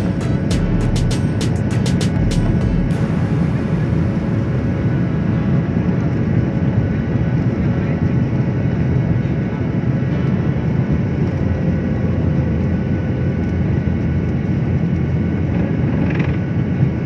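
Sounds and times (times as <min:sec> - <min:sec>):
faint engine whine: 0:00.0 - 0:17.0
jet engines rumbling: 0:00.0 - 0:17.0.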